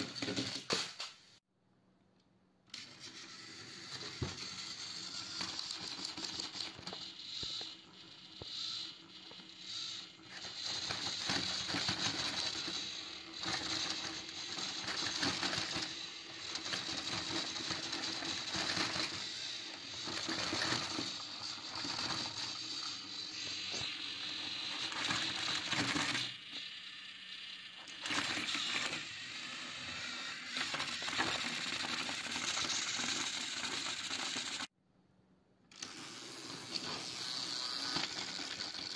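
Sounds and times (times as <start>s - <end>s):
toy train motors whirring: 0.0s - 1.4s, 2.7s - 34.7s, 35.7s - 38.9s
plastic wheels rattling on track: 9.3s - 26.4s, 29.7s - 34.7s, 35.8s - 38.9s.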